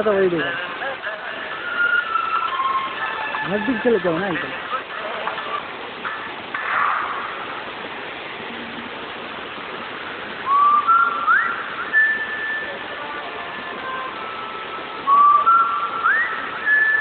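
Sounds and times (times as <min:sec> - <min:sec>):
waterfall rushing: 0:00.0 - 0:17.0
person whistling: 0:10.5 - 0:12.9, 0:15.0 - 0:17.0.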